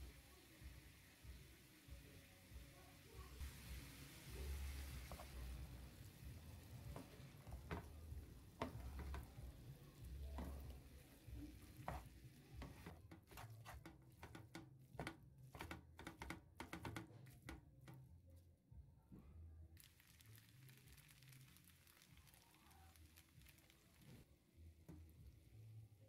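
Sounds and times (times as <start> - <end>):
faint sizzle: 0.0 - 13.4, 19.8 - 26.0
wooden spatula scraping a pan: 4.8 - 5.6, 6.8 - 9.5, 10.1 - 17.6.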